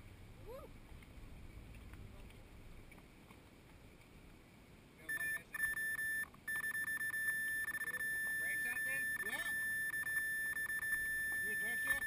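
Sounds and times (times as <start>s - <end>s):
high-pitched pulsing beep: 5.1s - 12.0s.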